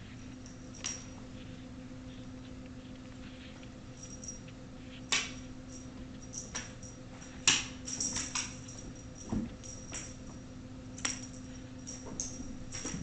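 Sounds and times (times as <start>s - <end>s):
low electrical hum: 0.0s - 13.0s
light metallic clinks: 5.1s - 10.4s, 11.0s - 13.0s.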